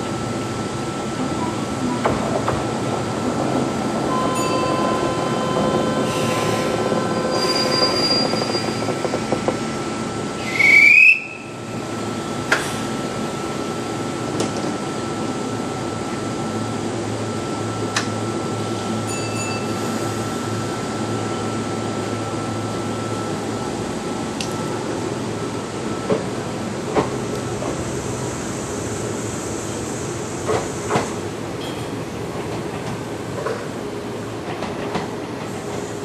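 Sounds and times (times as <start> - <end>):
electric train running noise: 0.0 - 36.0
train whine with low hum: 0.0 - 36.0
loud rising squeal: 4.1 - 9.0.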